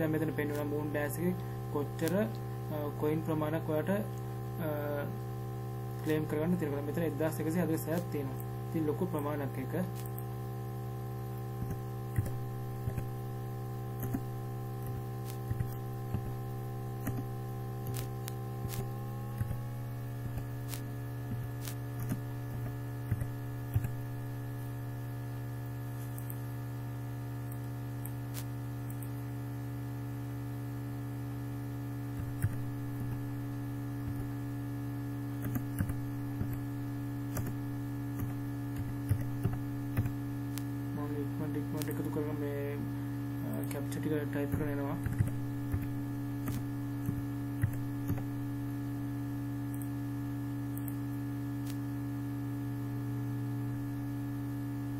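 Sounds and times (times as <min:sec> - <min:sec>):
electrical hum: 0:00.0 - 0:54.9
keyboard keys clicking: 0:14.0 - 0:16.4, 0:22.0 - 0:24.0
mouse click: 0:26.0 - 0:26.4, 0:49.7 - 0:49.9, 0:50.7 - 0:51.0.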